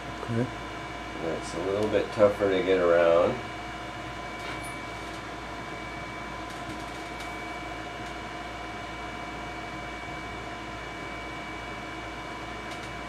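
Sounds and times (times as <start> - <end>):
machine hum with whining tones: 0.0 - 13.0.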